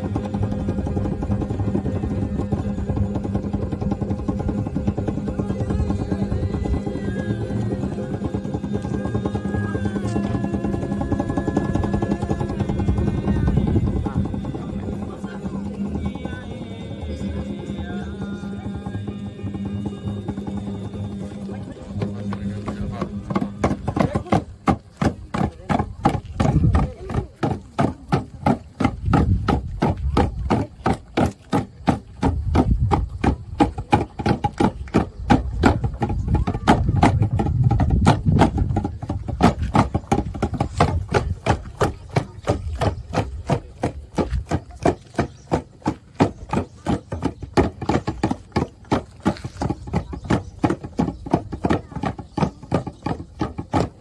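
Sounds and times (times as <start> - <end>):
people chanting: 0.0 - 25.8
hand drums beaten fast: 0.0 - 54.0.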